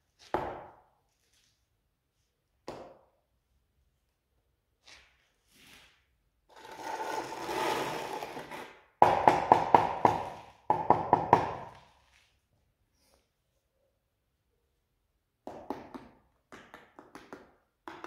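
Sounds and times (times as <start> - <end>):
trowel scraping adhesive: 6.5 - 8.8.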